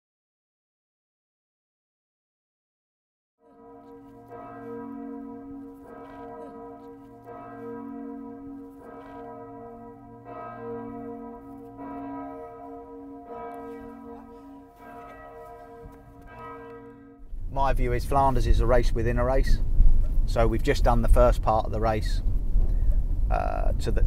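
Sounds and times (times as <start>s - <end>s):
large bells ringing: 3.4s - 19.6s.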